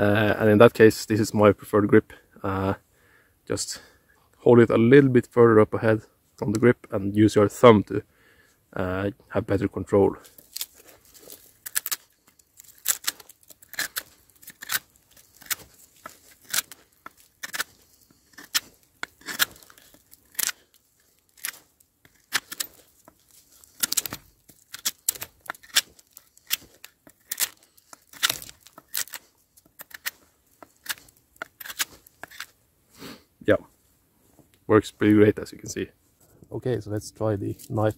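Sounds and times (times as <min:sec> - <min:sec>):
knife whittling wood: 0:10.5 - 0:32.6.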